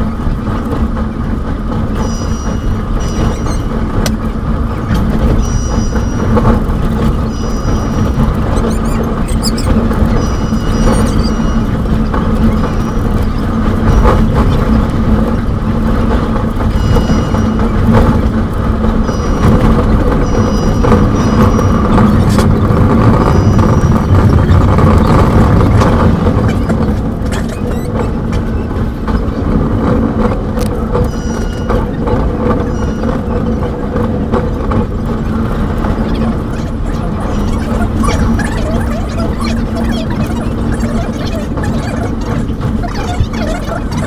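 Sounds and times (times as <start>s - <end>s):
train rumbling with fast clicks: 0.0s - 44.0s
short high tones: 2.0s - 4.0s, 4.9s - 14.6s, 16.7s - 18.3s, 18.9s - 26.9s, 31.0s - 32.0s.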